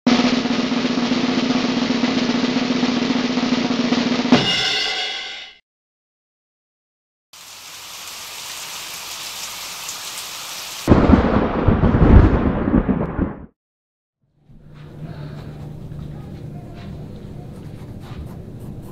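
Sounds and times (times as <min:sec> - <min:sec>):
sudden ringing hit: 0:04.4 - 0:05.3.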